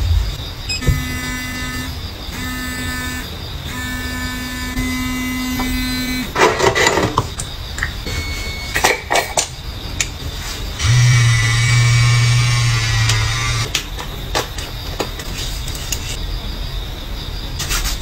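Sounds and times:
electric device buzzing: 0:00.0 - 0:06.4, 0:10.8 - 0:13.7.

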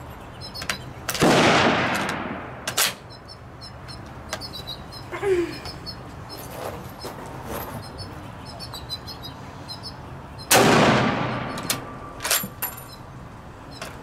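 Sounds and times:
birds chirping faintly: 0:00.0 - 0:01.2, 0:03.0 - 0:10.6, 0:11.3 - 0:14.0
rifle shot echoing: 0:01.2 - 0:02.6, 0:10.5 - 0:11.6.

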